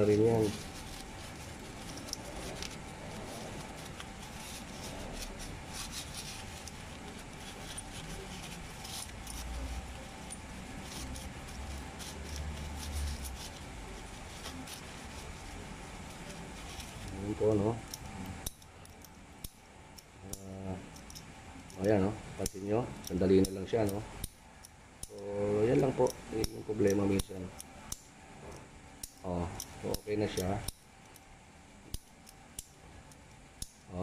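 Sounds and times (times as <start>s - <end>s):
tissue rustling: 0.0s - 17.8s.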